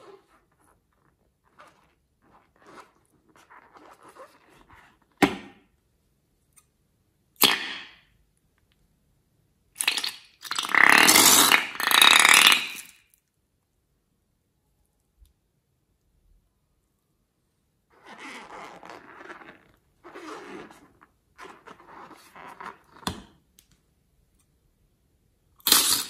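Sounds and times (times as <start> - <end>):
balloon sputtering farting noises: 9.9 - 12.9, 25.6 - 26.0.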